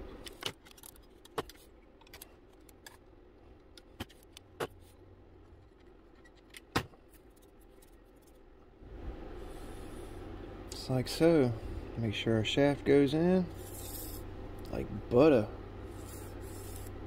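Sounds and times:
metal parts clicking and tapping: 0:00.2 - 0:04.4.

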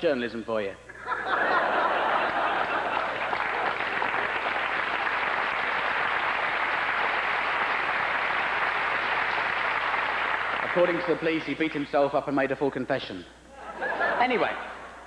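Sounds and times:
audience applauding: 0:01.8 - 0:11.4.

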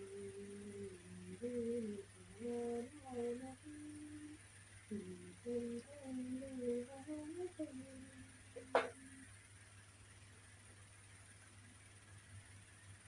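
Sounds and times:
woman humming a slow tune: 0:00.0 - 0:09.3.

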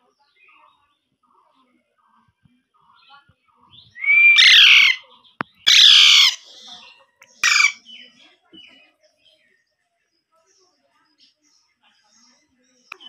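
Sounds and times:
parakeet squawking: 0:04.0 - 0:05.0, 0:05.6 - 0:06.8, 0:07.4 - 0:07.8.

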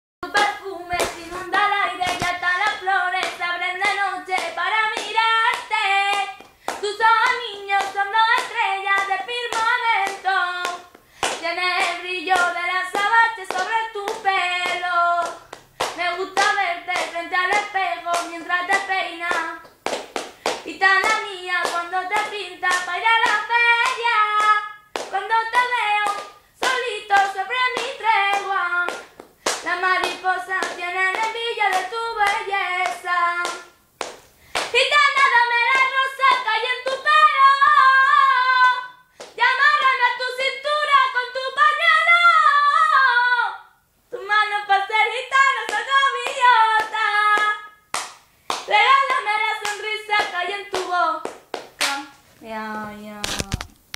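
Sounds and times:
hands clapping: 0:00.3 - 0:34.7, 0:45.7 - 0:52.0.

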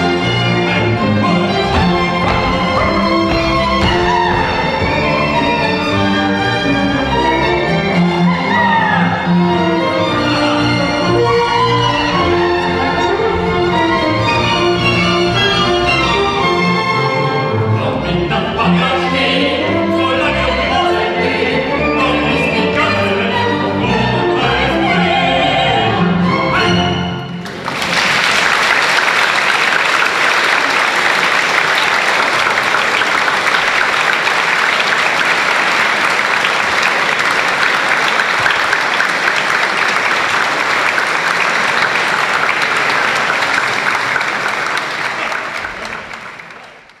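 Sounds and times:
audience applause: 0:00.0 - 0:07.9, 0:27.4 - 0:47.0
operetta singers: 0:00.0 - 0:27.2
small orchestra playing: 0:00.0 - 0:28.8.

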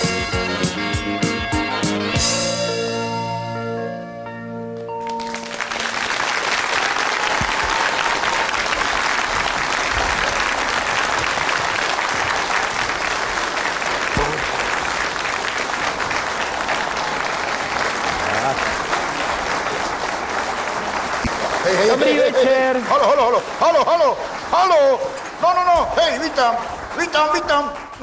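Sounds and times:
band playing: 0:00.0 - 0:06.2
audience applauding: 0:04.8 - 0:28.0.

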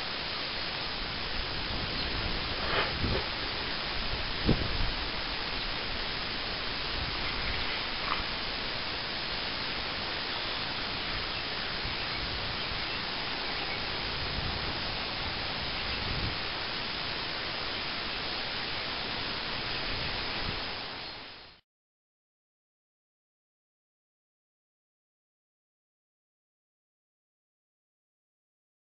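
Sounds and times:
recording hiss: 0:00.0 - 0:21.6.

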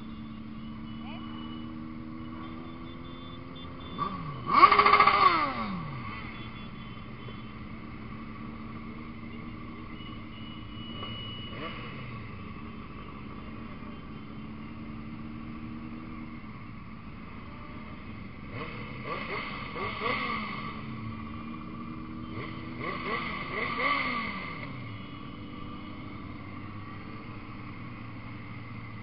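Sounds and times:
motorcycle engines droning: 0:00.0 - 0:29.0
motorcycle revving: 0:00.0 - 0:29.0.

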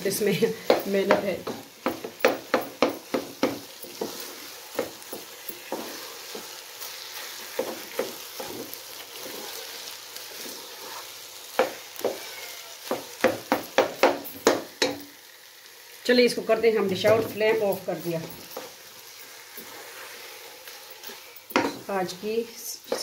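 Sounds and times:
food sizzling in oil: 0:00.0 - 0:23.0
wooden spatula scraping pot: 0:00.6 - 0:13.2, 0:17.0 - 0:22.1.

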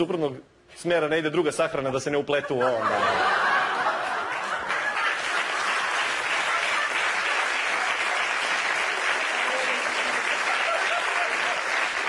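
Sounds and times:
audience applauding: 0:03.6 - 0:12.0.

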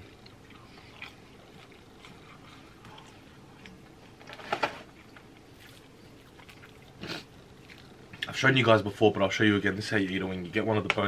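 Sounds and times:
quiet chewing: 0:00.0 - 0:08.4.

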